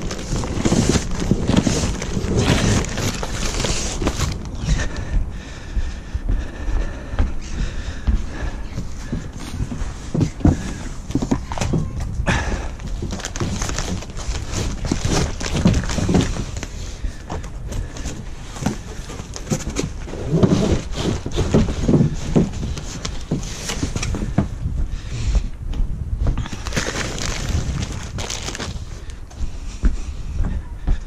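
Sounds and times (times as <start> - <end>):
cardboard box rustling and scraping: 0.0 - 4.6, 12.9 - 16.8, 17.9 - 24.4, 26.4 - 28.8
footsteps on wooden decking: 0.0 - 31.0.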